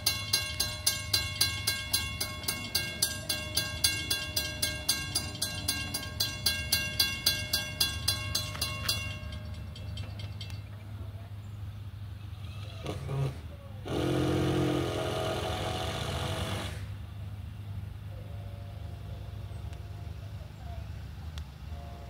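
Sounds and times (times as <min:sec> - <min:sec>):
crossing warning bell ringing: 0:00.0 - 0:11.2.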